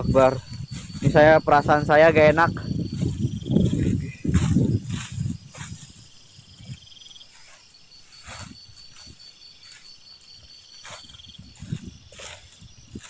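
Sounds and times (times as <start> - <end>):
low wind gusts: 0.0 - 7.4, 10.4 - 13.0
insects trilling: 0.0 - 13.0.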